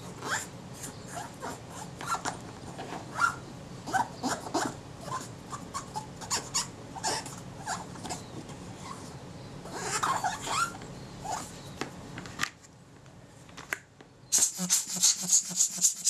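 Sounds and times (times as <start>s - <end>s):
cotton bud scrubbing metal ring: 14.4s - 16.0s.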